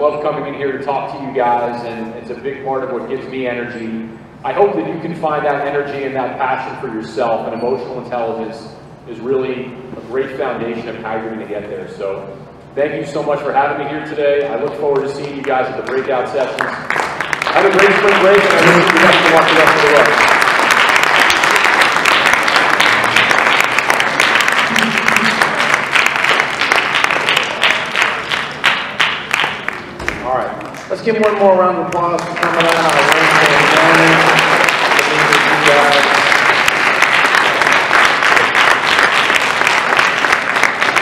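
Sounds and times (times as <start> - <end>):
audience applauding: 16.5 - 41.0.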